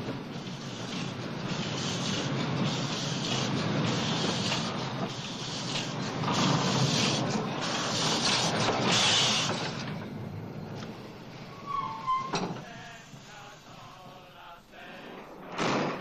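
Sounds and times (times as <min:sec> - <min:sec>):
rush of steam and running noise: 0:00.0 - 0:10.0
steam locomotive chuffing: 0:00.0 - 0:10.0.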